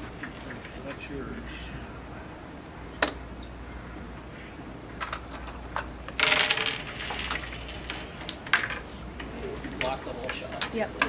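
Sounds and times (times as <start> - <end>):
wooden discs clicking on board: 3.0 - 3.2, 5.0 - 11.0.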